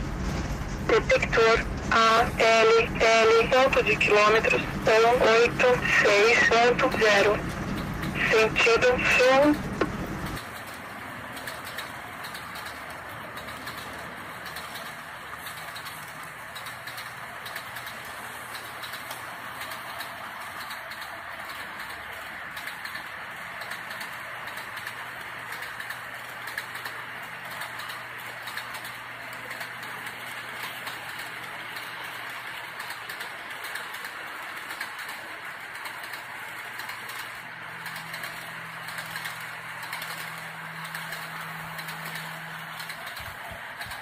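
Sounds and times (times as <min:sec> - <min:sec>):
low steady hum: 0:00.0 - 0:10.4
model train wheels rolling: 0:00.0 - 0:44.0.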